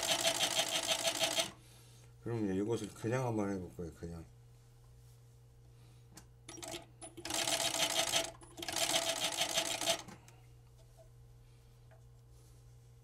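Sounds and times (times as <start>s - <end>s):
sewing machine stitching: 0.0s - 1.6s, 6.6s - 10.0s.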